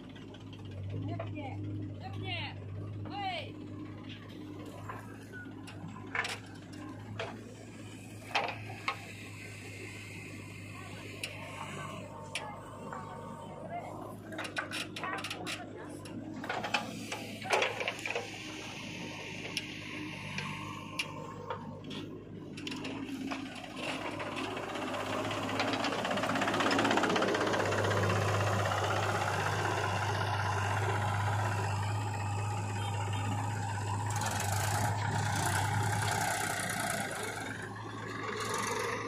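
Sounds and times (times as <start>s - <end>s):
diesel engines droning: 0.0s - 39.0s
hiss: 18.2s - 21.1s.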